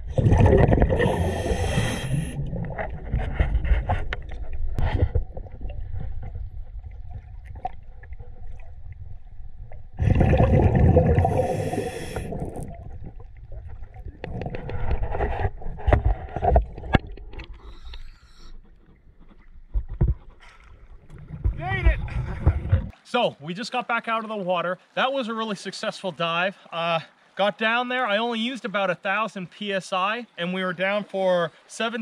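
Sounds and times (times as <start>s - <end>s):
low bubbling: 0.0s - 17.8s
diver breathing through regulator: 0.9s - 4.2s, 10.0s - 12.8s, 17.5s - 18.8s.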